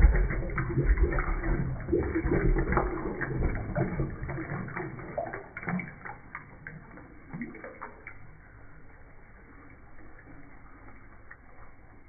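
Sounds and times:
toilet flushing: 0.0 - 7.9
water splashes: 0.0 - 12.0.

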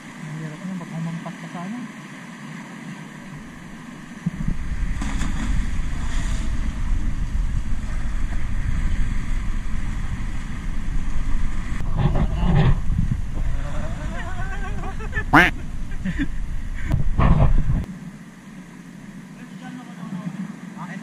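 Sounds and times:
wind rumbling on microphone: 3.3 - 17.9.

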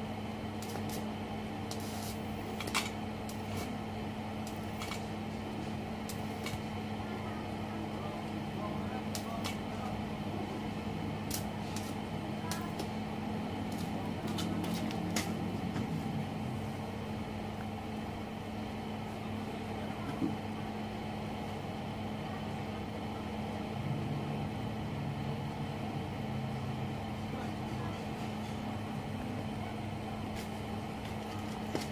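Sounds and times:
welder humming: 0.0 - 19.0.

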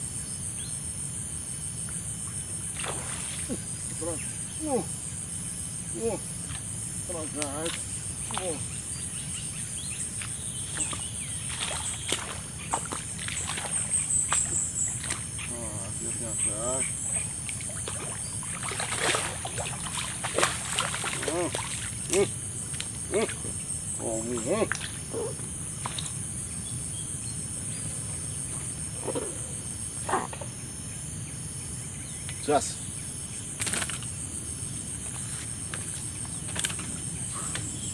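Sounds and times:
high-pitched insect drone: 0.0 - 37.9
boots wading in shallow water: 10.7 - 15.5, 17.1 - 22.0.

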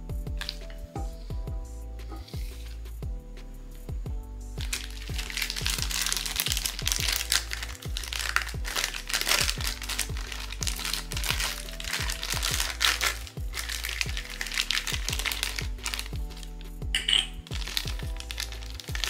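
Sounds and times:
background music with low beat: 0.0 - 19.0
packaging crinkling and rustling: 4.6 - 19.0.

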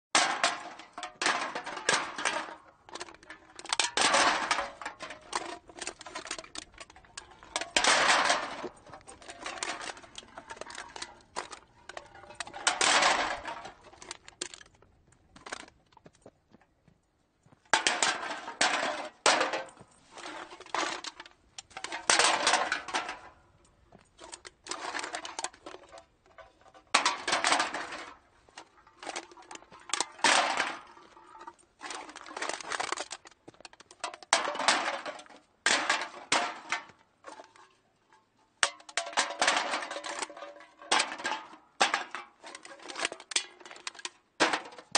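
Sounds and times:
metal cans clattering into cart: 0.1 - 14.7, 17.7 - 23.4, 24.2 - 37.8, 38.6 - 44.9.

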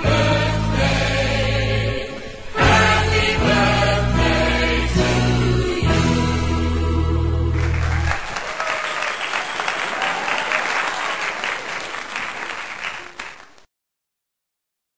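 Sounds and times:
music track: 0.0 - 8.1
group clapping: 7.5 - 13.7.

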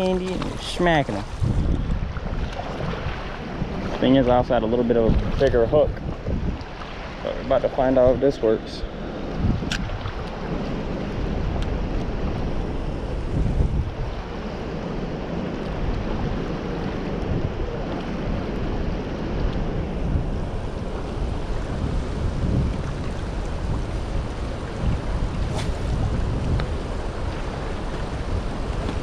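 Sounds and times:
wind buffeting microphone: 0.0 - 29.0
fast-flowing river rushing: 8.5 - 29.0.

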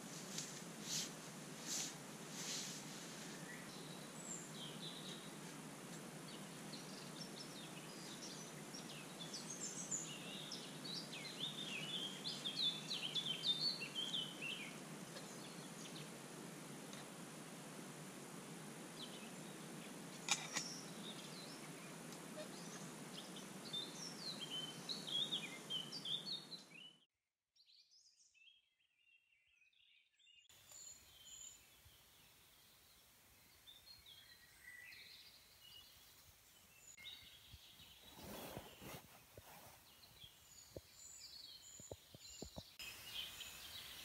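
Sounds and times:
birds singing and chirping: 6.3 - 16.1, 19.0 - 27.0, 36.8 - 44.0.

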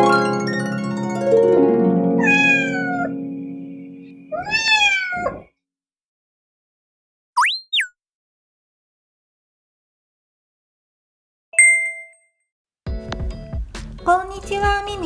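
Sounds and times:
plucked harp-like music: 0.0 - 4.3
cat meowing: 2.2 - 3.2, 4.3 - 5.5
short rising chirps: 7.4 - 7.9.

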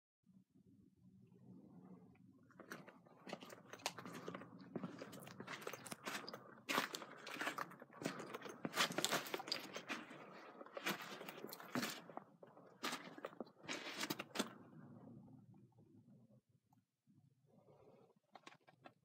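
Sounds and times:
footsteps on sandstone and sand: 3.3 - 14.5.

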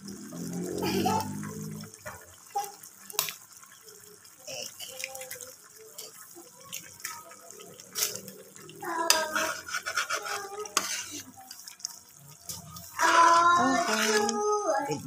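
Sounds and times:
spoon stirring soup in pot: 5.7 - 15.0.

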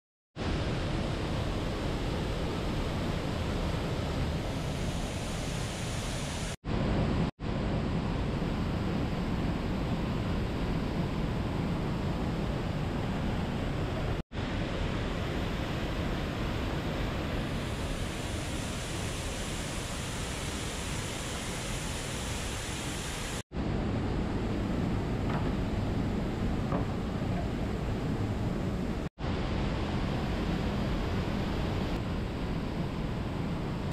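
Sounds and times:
waterfall rushing: 14.4 - 23.4.

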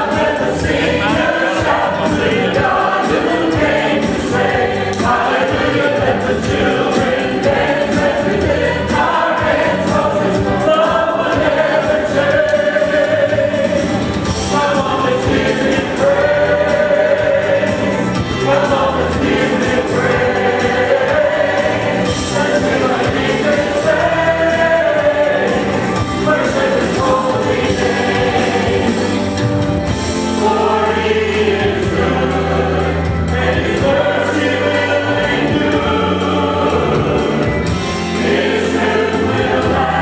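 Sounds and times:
mixed choir singing: 0.0 - 40.0.

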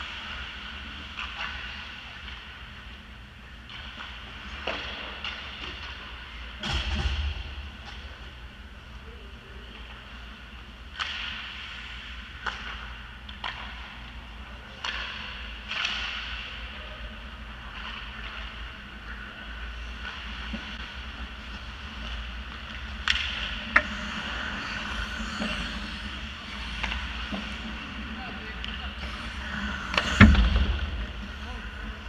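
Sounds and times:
low rink hum: 0.0 - 32.0
hockey sticks knocking puck: 22.0 - 28.8.

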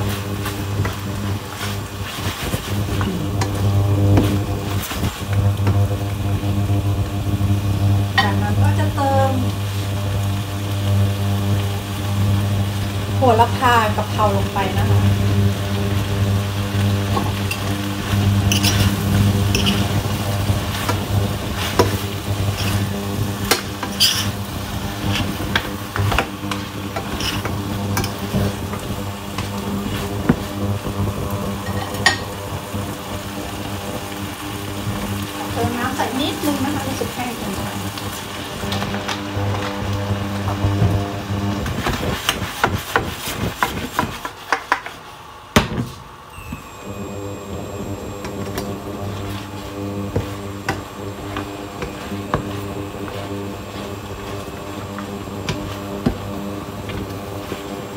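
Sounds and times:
food sizzling in a frying pan: 0.0 - 44.6, 46.4 - 57.9
spatula scraping a metal pan: 17.5 - 20.0, 21.5 - 28.3
steady low hum: 45.2 - 57.9.

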